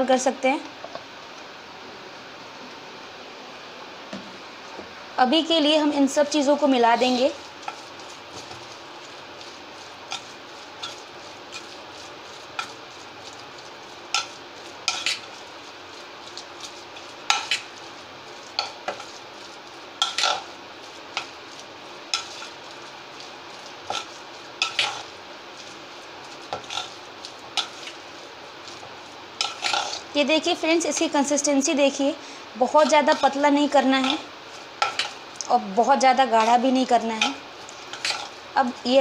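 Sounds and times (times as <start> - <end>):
thick batter mixed by hand: 6.4 - 31.7.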